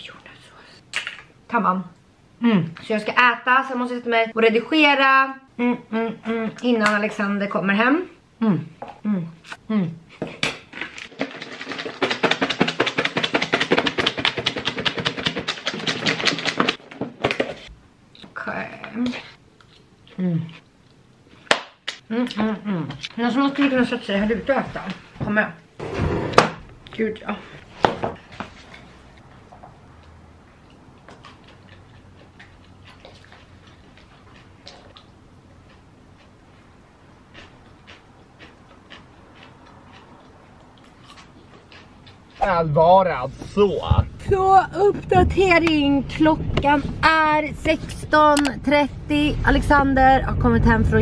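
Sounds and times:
salad rattling in plastic bowl: 11.1 - 16.8.

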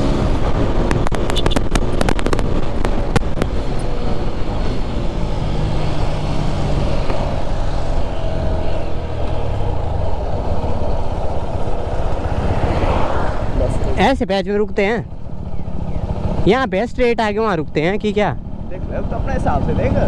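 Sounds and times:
motorcycle engine running: 0.0 - 12.4, 13.7 - 20.0
wind rush on microphone: 0.0 - 14.0.

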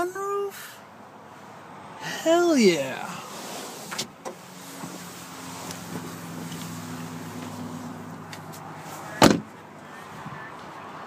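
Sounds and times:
car door shutting: 3.4 - 5.0, 9.2 - 9.5.

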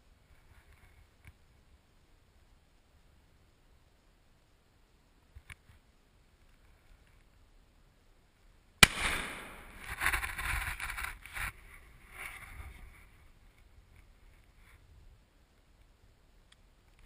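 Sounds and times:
rifle shot: 8.8 - 10.4.

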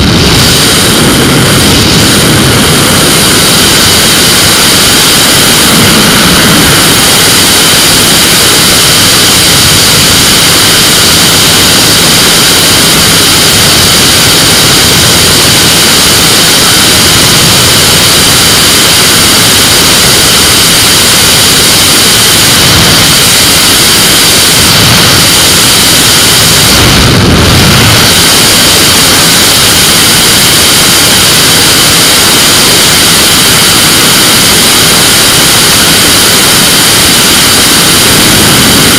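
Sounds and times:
microlight engine at full power: 0.0 - 38.9
wind rushing over microphone: 0.0 - 38.9.

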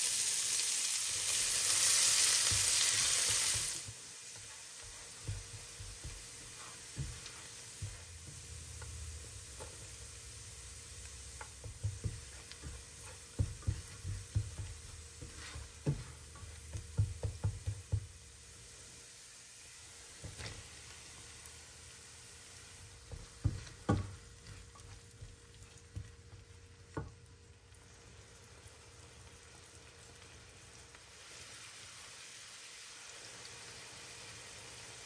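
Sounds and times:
food sizzling in frying pan: 0.0 - 35.0
utensil knocking against pan: 13.4 - 18.1.

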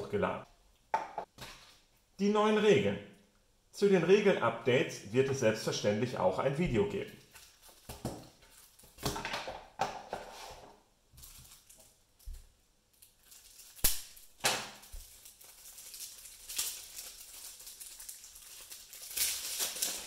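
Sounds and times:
plastic wrap crinkling: 7.1 - 9.2, 11.2 - 20.0.

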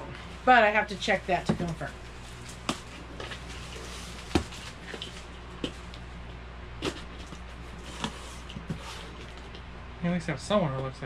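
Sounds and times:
steady low hum: 0.0 - 11.0
cardboard box knocks and rustles: 4.2 - 4.7.

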